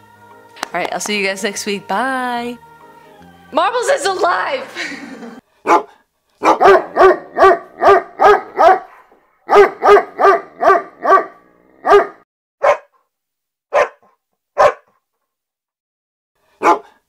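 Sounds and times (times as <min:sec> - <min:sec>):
dog barking: 0:05.6 - 0:13.0, 0:13.7 - 0:15.0, 0:16.6 - 0:17.0.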